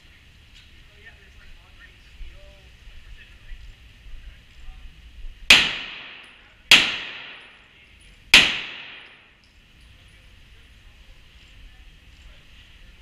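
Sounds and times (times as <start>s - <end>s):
pistol shots echoing: 5.5s - 7.6s, 8.3s - 9.4s.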